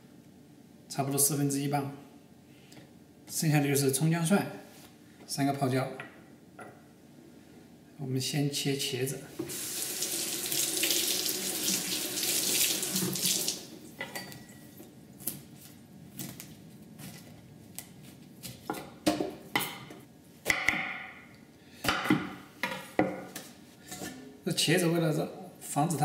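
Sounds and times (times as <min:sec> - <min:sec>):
tap running into a sink: 0:10.5 - 0:13.6.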